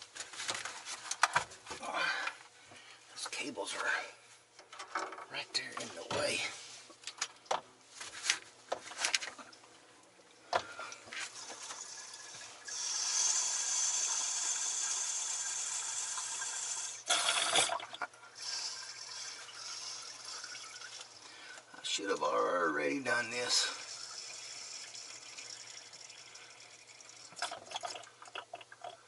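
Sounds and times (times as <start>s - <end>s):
water trickling into battery: 15.9s - 21.2s, 23.5s - 29.0s.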